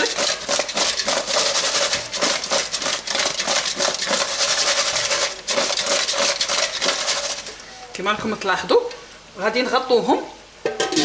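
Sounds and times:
potato chunks rattling in a pan: 0:00.0 - 0:07.7.

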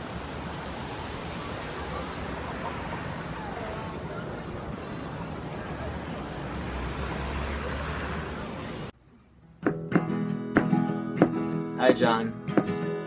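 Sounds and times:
traffic din: 0:00.0 - 0:09.6
crowd noise: 0:01.2 - 0:08.9
acoustic guitar strumming: 0:09.5 - 0:13.0.

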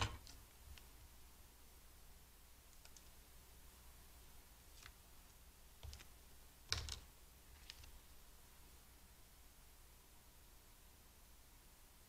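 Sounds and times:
paper and card crinkling: 0:06.7 - 0:08.0.

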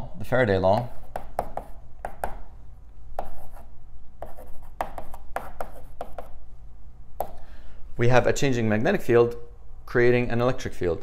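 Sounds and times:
chalk tapping and scratching: 0:00.7 - 0:02.5, 0:03.2 - 0:06.4.

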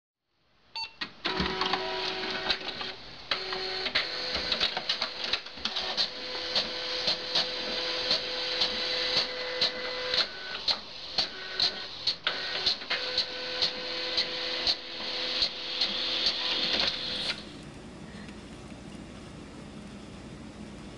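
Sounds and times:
print mechanism clicks: 0:01.0 - 0:17.4
printer motors whirring: 0:01.2 - 0:17.6.

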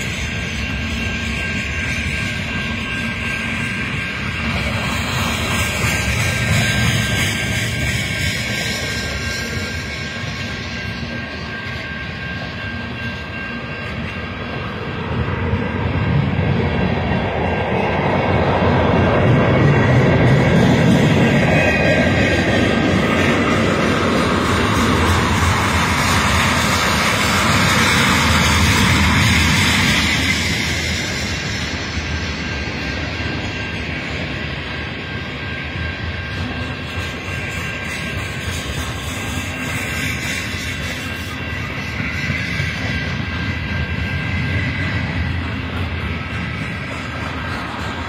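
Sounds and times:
freight train rumbling past: 0:00.0 - 0:48.0.

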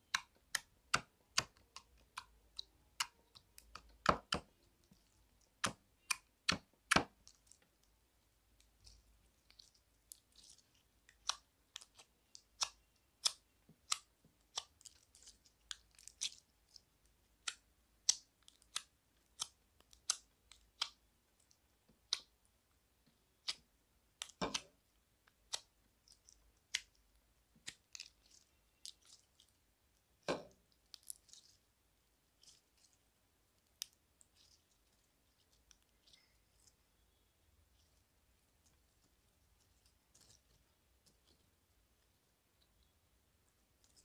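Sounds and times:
slime squelches: 0:00.0 - 0:44.0
slime clicking and popping: 0:09.5 - 0:22.4.

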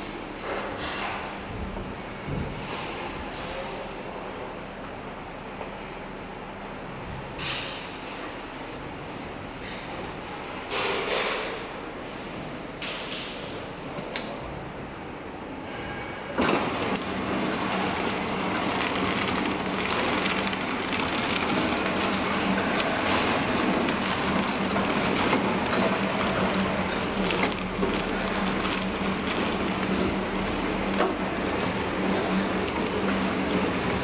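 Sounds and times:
packing machine clatter: 0:16.4 - 0:34.0.

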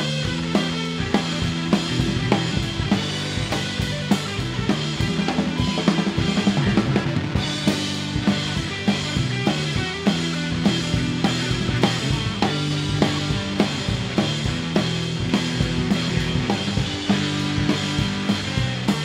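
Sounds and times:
bass drum and snare beat: 0:00.0 - 0:19.0
bass guitar: 0:00.0 - 0:19.0
electric guitar: 0:00.0 - 0:19.0.

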